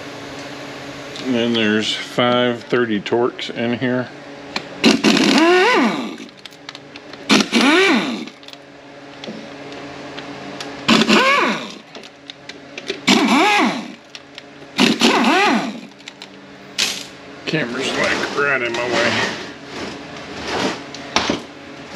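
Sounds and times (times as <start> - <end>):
cordless power tool whining: 4.8 - 6.3, 7.3 - 8.6, 10.9 - 12.0, 13.0 - 14.1, 14.8 - 16.2.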